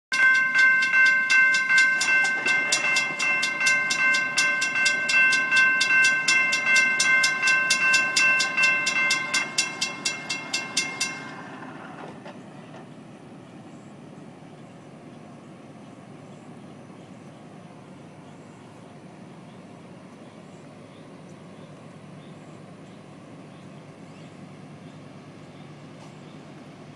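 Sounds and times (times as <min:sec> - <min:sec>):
railroad crossing bell ringing: 0:00.1 - 0:12.9.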